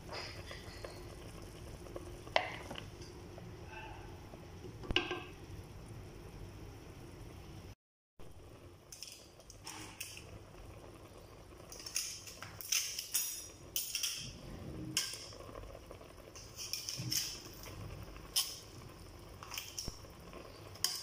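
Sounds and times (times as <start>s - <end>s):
cookware clinking: 11.7s - 14.4s.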